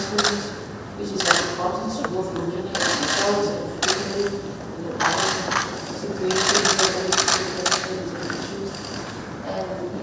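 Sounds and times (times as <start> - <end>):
murmur of voices: 0.0 - 10.0
camera shutters clicking: 5.0 - 9.1.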